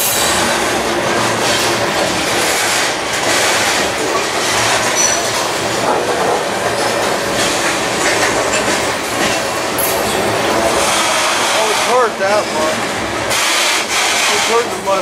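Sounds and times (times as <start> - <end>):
freight train rumbling past: 0.0 - 15.0
wheels clickety-clack on rails: 0.0 - 15.0
high wheel squeal: 4.9 - 5.4, 11.0 - 12.8.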